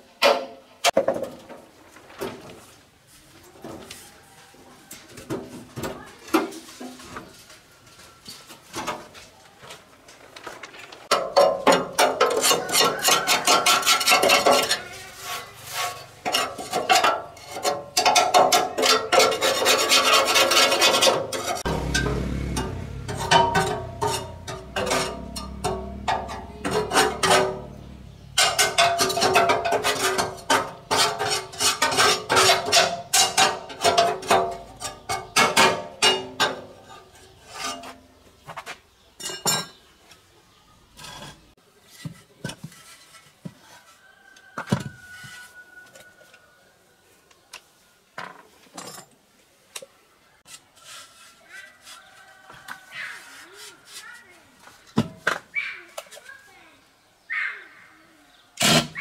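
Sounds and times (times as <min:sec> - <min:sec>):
low hum: 0:21.7 - 0:28.4.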